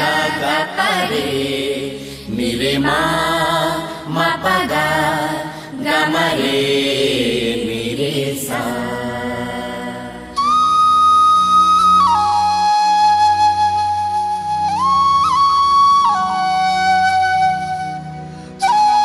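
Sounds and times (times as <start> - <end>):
chanted vocal melody: 0.0 - 12.5
low drone: 0.0 - 12.8.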